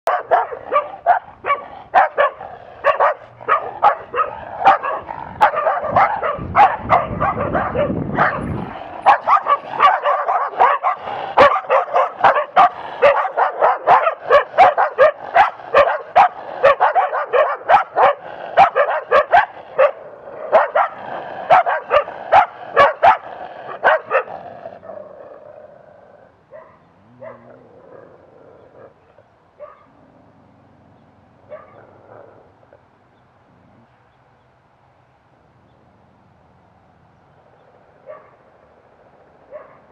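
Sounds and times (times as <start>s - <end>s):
dogs barking: 0.0s - 25.2s, 26.5s - 27.6s, 29.6s - 30.0s, 31.4s - 32.8s, 38.0s - 38.5s, 39.5s - 39.9s.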